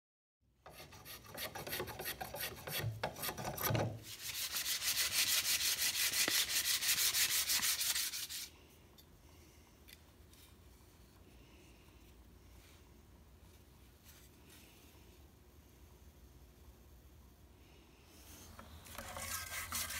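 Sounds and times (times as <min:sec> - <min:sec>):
hand tool scraping wood: 0:00.7 - 0:08.5, 0:18.5 - 0:19.9.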